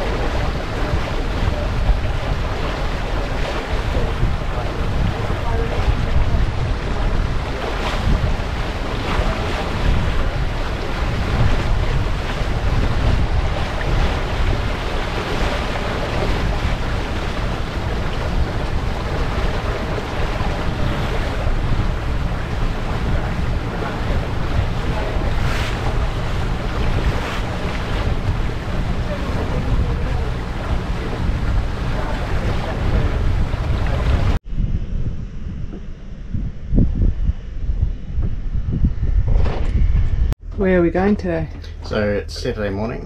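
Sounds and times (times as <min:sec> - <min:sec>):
water rushing along a hull: 0:00.0 - 0:34.4
water swishes: 0:00.0 - 0:34.4
wind buffeting the microphone: 0:00.0 - 0:43.0.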